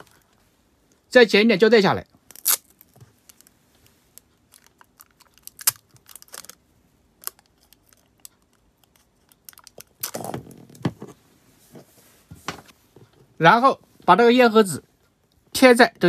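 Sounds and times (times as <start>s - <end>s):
packing tape crackling: 4.2s - 6.6s, 7.2s - 10.5s.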